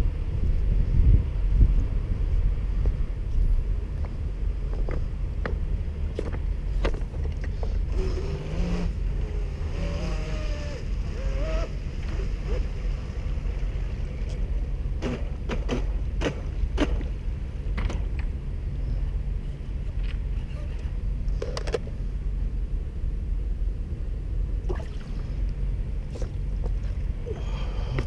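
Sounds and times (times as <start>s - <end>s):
low rumble: 0.0s - 28.0s
distant electric boat motor: 7.6s - 17.2s.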